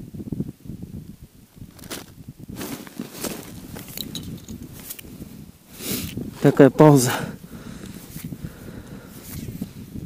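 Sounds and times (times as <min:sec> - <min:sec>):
jacket sleeves rustling: 0:01.7 - 0:05.1.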